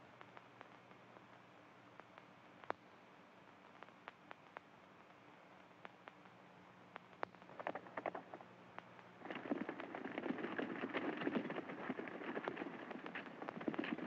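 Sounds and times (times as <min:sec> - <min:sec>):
old film soundtrack hum and crackle: 0:00.0 - 0:14.0
scattered clicks: 0:05.6 - 0:14.0
horses galloping: 0:09.2 - 0:14.0.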